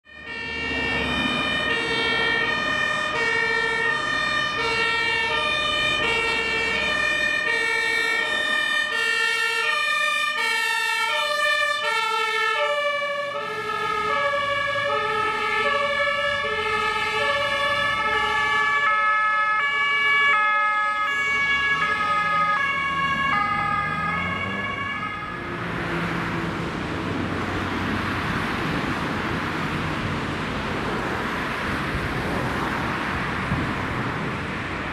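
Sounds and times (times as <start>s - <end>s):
two-tone fire engine horns: 0.0s - 26.7s
passing traffic: 0.0s - 34.9s.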